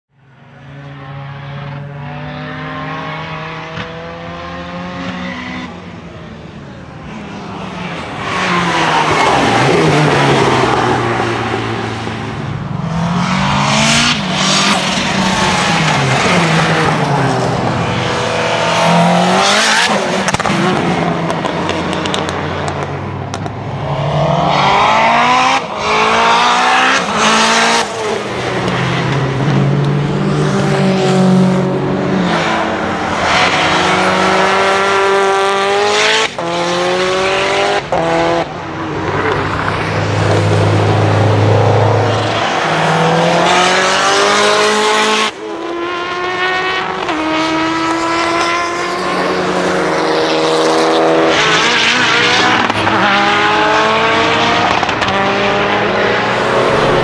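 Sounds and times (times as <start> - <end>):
race car engine accelerating: 39.1 - 57.0.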